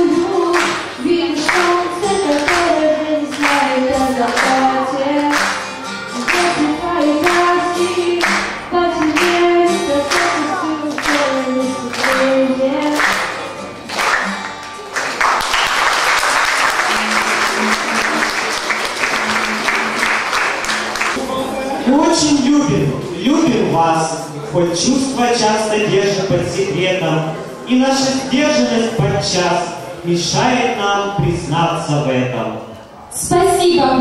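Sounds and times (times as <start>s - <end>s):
person singing over backing track: 0.0s - 13.8s
audience applauding: 10.1s - 21.2s.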